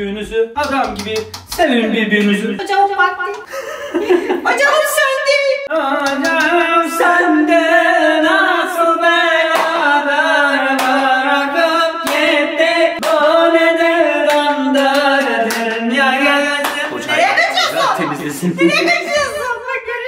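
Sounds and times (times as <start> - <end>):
hand claps: 0.6 - 2.4, 5.9 - 6.6, 9.5 - 9.8, 10.7 - 11.0, 12.0 - 12.3, 13.0 - 13.3, 14.3 - 16.0, 16.6 - 17.0
man and woman singing: 5.6 - 19.6.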